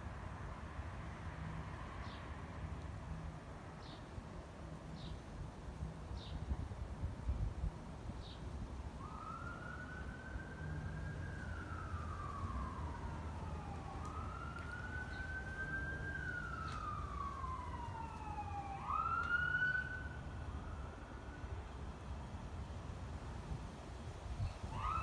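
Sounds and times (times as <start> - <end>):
emergency siren wailing: 8.8 - 22.0, 24.4 - 25.0.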